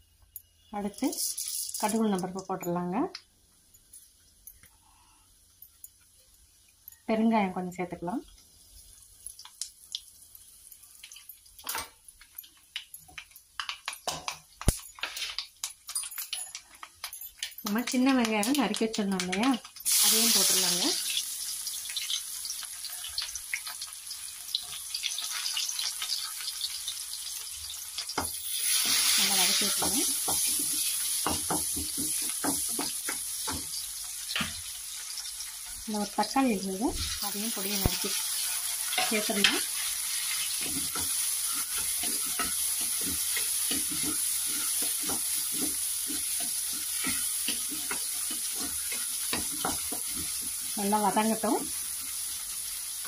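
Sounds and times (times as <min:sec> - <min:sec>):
shallots sizzling in hot oil: 0:00.0 - 0:53.0
oil popping and crackling: 0:09.0 - 0:53.0
wooden spoon scraping a pan: 0:37.0 - 0:50.8.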